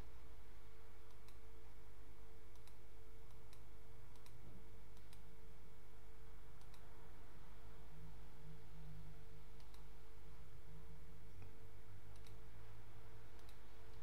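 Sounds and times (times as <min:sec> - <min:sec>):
steady low hum: 0:00.0 - 0:14.0
computer mouse clicking: 0:01.1 - 0:01.5, 0:02.5 - 0:05.3, 0:06.6 - 0:06.9, 0:09.5 - 0:09.9, 0:11.3 - 0:12.5, 0:13.3 - 0:14.0.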